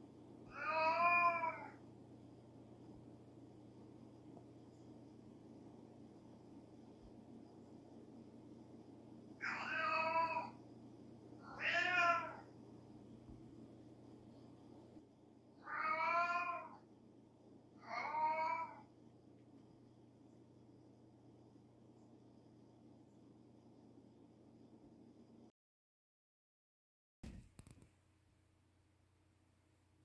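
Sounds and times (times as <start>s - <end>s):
cat meowing: 0.5s - 1.8s, 9.4s - 10.6s, 11.4s - 12.5s, 15.6s - 16.8s, 17.8s - 18.9s.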